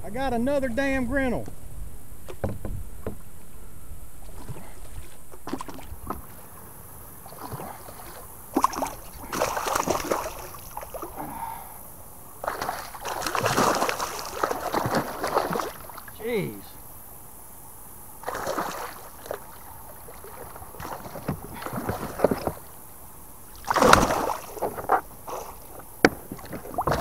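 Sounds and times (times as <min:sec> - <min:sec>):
fish splashing in water: 0:05.4 - 0:06.5, 0:07.1 - 0:11.7, 0:12.4 - 0:16.1, 0:18.2 - 0:22.8, 0:23.5 - 0:27.0.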